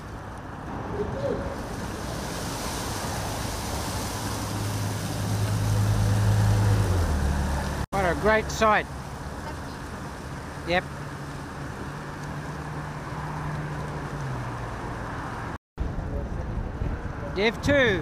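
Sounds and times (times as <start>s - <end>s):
passing vehicle engine hum: 0.2s - 17.4s
wind rushing over microphone: 11.4s - 18.0s.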